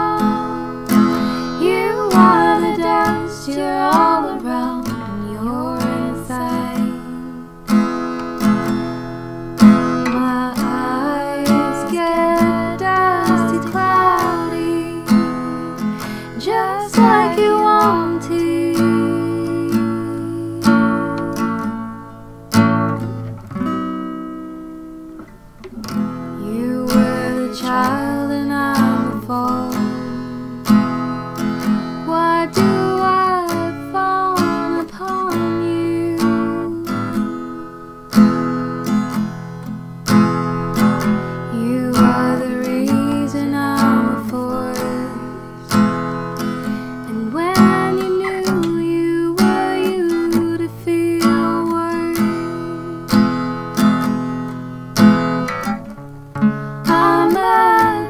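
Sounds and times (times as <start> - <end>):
person singing: 0.0 - 7.5, 10.1 - 21.6, 26.4 - 30.3, 32.0 - 37.5, 41.5 - 45.8, 47.1 - 53.1, 56.8 - 58.0
acoustic guitar strumming: 0.0 - 58.0.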